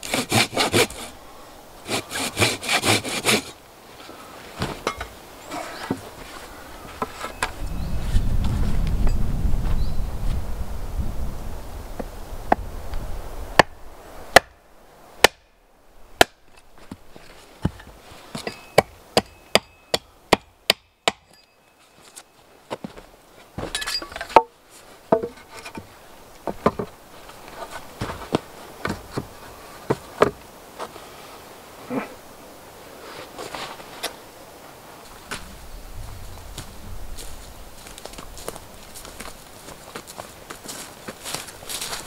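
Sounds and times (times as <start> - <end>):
rustling: 1.8 - 10.6, 16.4 - 18.8, 21.5 - 32.2, 32.8 - 42.0
axe striking wood: 13.6 - 14.5, 16.2 - 16.4, 17.6 - 21.4
wooden knocks: 25.1 - 25.9, 26.5 - 26.9.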